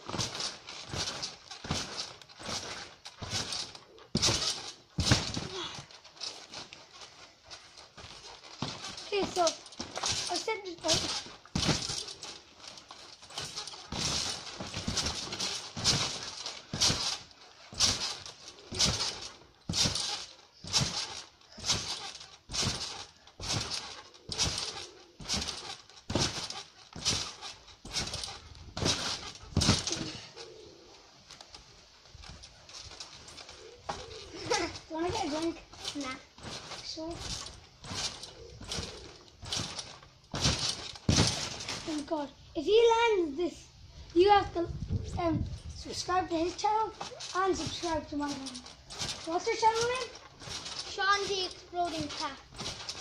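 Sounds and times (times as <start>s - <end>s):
trampoline bouncing thumps: 0.0s - 30.4s, 31.2s - 43.4s, 44.1s - 53.0s.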